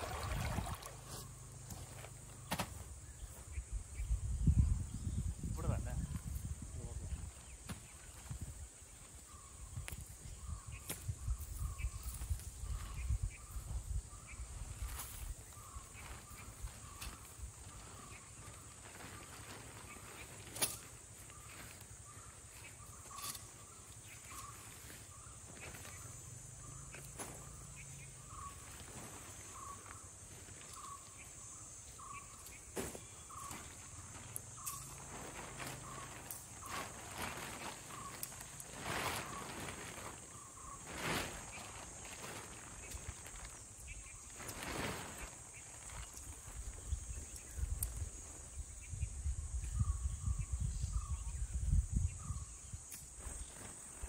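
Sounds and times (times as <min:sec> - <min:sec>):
insect chorus: 0:00.0 - 0:54.0
bird calling: 0:11.6 - 0:46.2.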